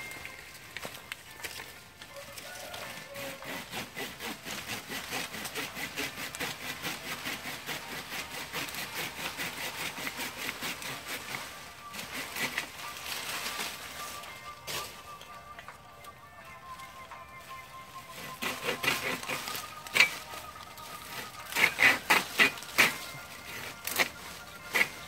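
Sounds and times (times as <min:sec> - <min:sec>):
hand saw cutting stem: 0:02.5 - 0:13.7, 0:18.1 - 0:25.0.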